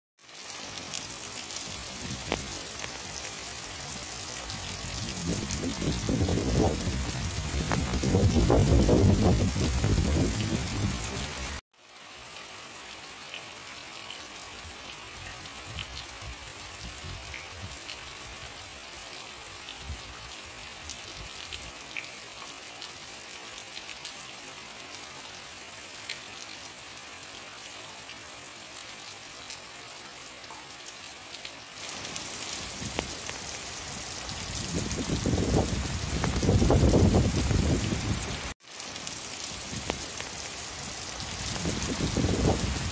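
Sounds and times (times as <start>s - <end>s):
steady rain falling: 0.2s - 42.9s.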